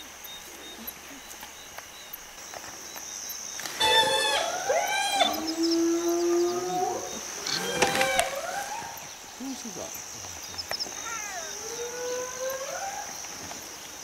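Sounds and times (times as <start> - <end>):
high insect drone: 0.0 - 14.0
hyenas whining and yelling: 3.6 - 9.2, 11.0 - 13.6.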